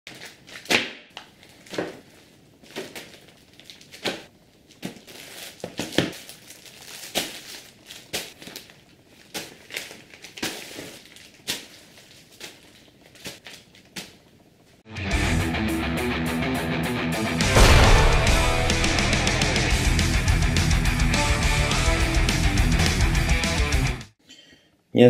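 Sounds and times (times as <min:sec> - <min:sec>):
plastic mailer bags crinkling: 0:00.1 - 0:14.4.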